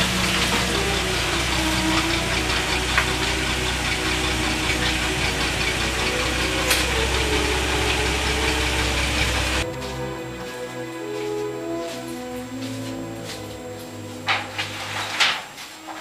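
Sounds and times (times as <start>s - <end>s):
car engine idling: 0.0s - 10.5s.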